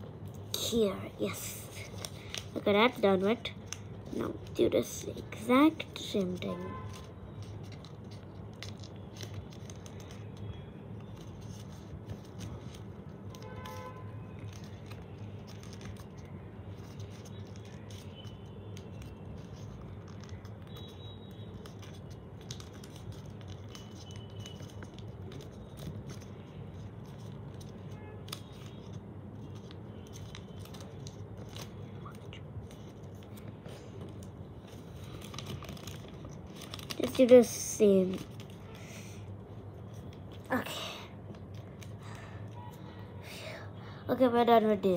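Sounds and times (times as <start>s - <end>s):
paper rustling and crinkling: 1.3s - 40.6s.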